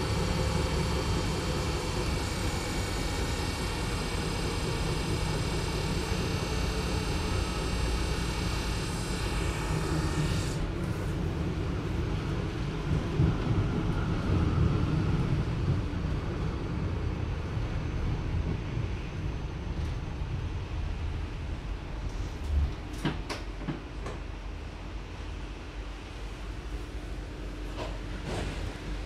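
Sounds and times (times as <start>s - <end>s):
tram rumbling: 0.0s - 2.6s, 10.7s - 29.0s
electric drive whine: 0.0s - 10.6s.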